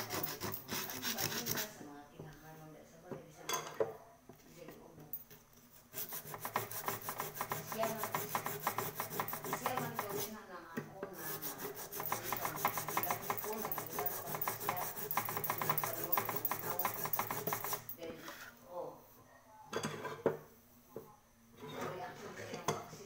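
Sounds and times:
scraping metal cauldron: 0:00.0 - 0:01.7, 0:06.0 - 0:10.3, 0:11.2 - 0:18.6.

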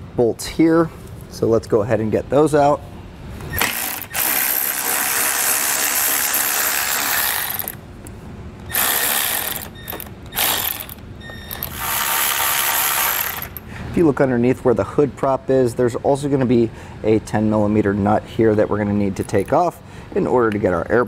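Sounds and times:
power ratchet running: 0:03.6 - 0:07.8, 0:08.7 - 0:13.6.

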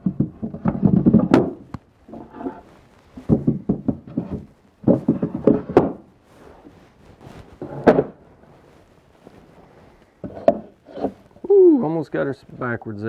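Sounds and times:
wooden boards knocking: 0:00.0 - 0:02.6, 0:03.2 - 0:06.1, 0:07.6 - 0:08.2.

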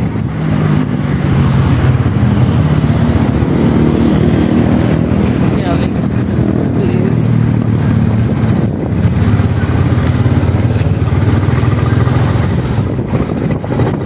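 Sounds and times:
motorcycle engine running: 0:00.0 - 0:14.0
road noise: 0:00.0 - 0:14.0.

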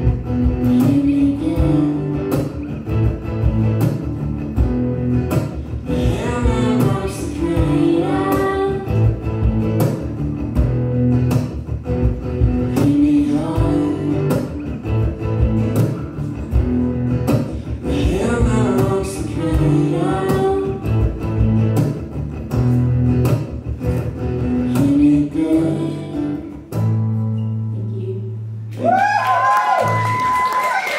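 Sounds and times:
acoustic guitar strumming: 0:00.0 - 0:27.7
person singing: 0:00.6 - 0:02.6, 0:05.9 - 0:09.2, 0:12.6 - 0:14.6, 0:17.7 - 0:21.1, 0:24.6 - 0:26.7.

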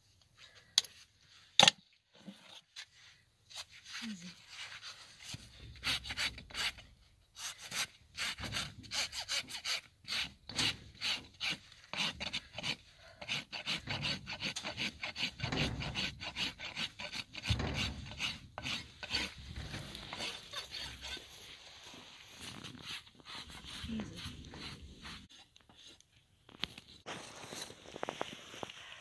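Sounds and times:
hand rasp filing hoof: 0:04.7 - 0:21.5, 0:22.4 - 0:26.0.

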